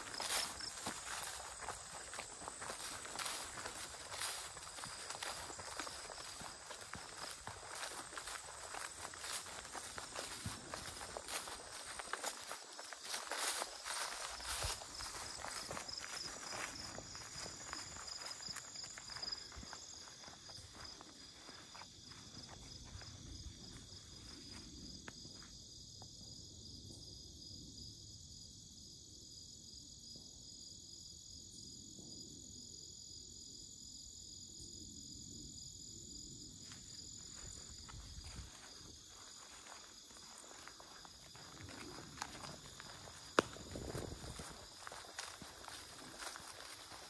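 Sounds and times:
footsteps on grass: 0.0s - 25.5s, 36.6s - 47.0s
crickets trilling: 0.0s - 47.0s.

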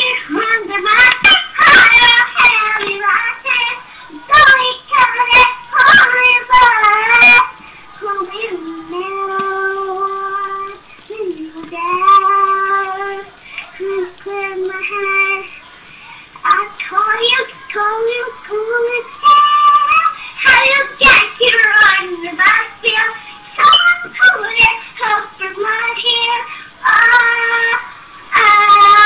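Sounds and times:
girl singing a pop song: 0.0s - 29.0s.

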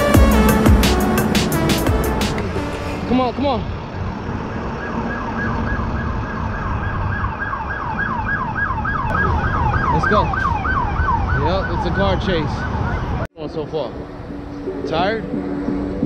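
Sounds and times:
low road rumble: 0.0s - 16.0s
siren yelping: 4.1s - 13.3s.

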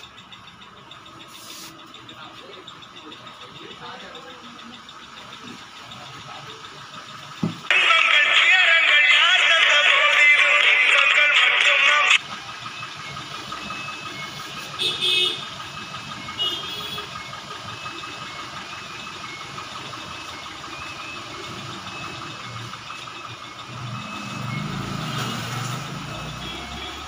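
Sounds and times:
engine rumble: 0.0s - 27.0s
road traffic noise: 0.0s - 27.0s
car horn toots: 14.7s - 15.6s, 16.4s - 17.2s.

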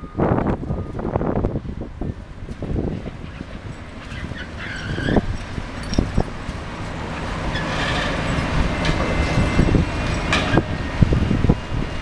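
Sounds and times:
excavator rumbling: 0.0s - 12.0s
high metallic squeal: 3.2s - 6.3s, 7.1s - 9.2s.

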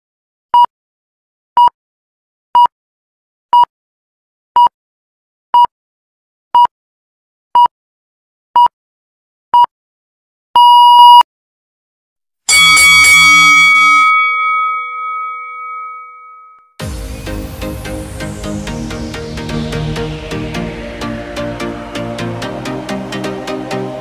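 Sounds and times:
countdown timer short beeps: 10.6s - 11.2s
timer long beep: 12.5s - 16.3s.

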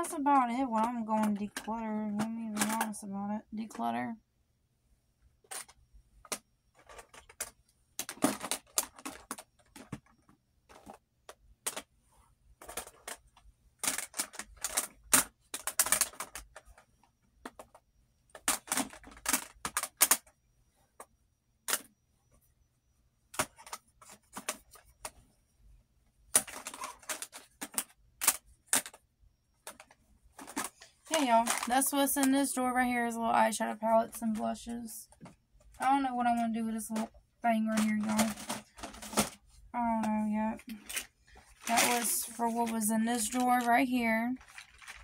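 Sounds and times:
plastic compacts clicking and clattering: 0.0s - 3.1s, 5.4s - 11.9s, 12.6s - 20.3s, 21.6s - 21.9s, 23.3s - 25.2s, 26.3s - 29.0s, 29.6s - 32.6s, 34.1s - 43.8s, 44.4s - 45.0s.

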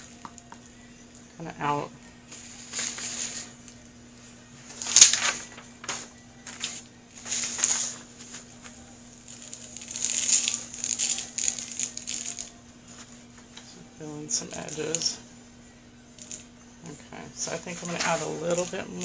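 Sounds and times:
faint motor hum: 0.0s - 19.0s
paper crinkling and rustling: 4.6s - 13.5s, 17.7s - 19.0s.

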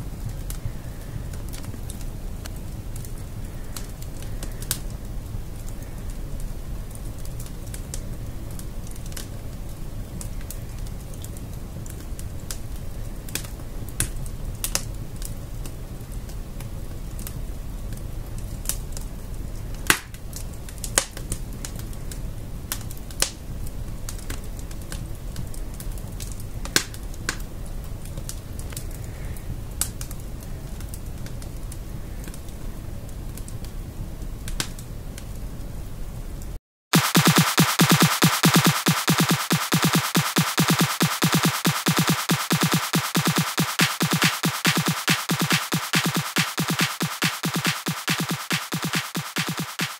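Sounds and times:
fire low rumble: 0.0s - 36.3s
logs crackling and popping: 0.1s - 29.1s, 29.8s - 32.5s.

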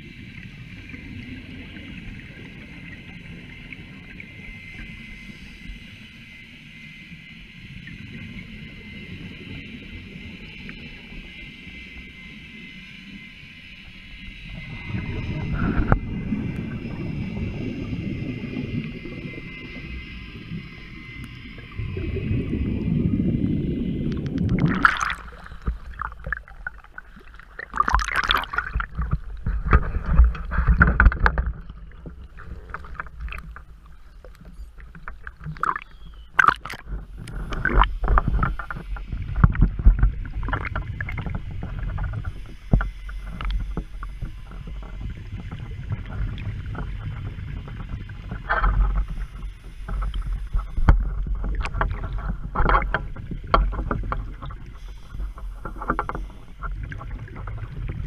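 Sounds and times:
sea water sloshing and splashing: 14.4s - 58.0s
low rumble: 14.6s - 42.7s.

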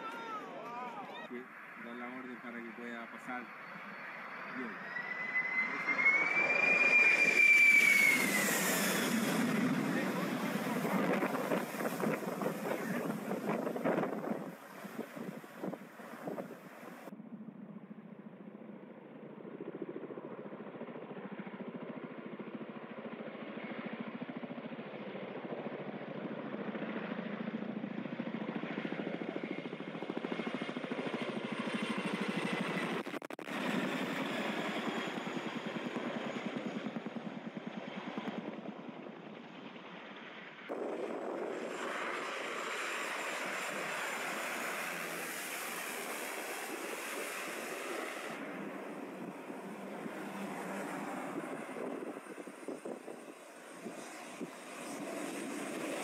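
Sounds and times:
turboprop airplane approaching: 1.3s - 56.0s
turbine noise: 1.8s - 17.1s, 40.7s - 56.0s
helicopter rotors chopping: 2.0s - 17.1s, 24.2s - 56.0s.

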